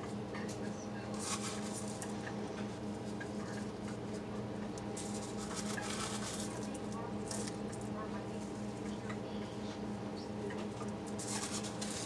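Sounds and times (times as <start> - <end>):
steady low hum: 0.0 - 12.0
plastic gloves rustling: 5.0 - 6.7.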